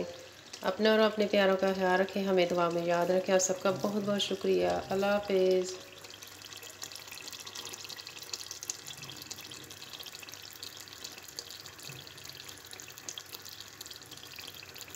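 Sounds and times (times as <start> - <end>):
curry simmering with sizzle: 0.0 - 14.9.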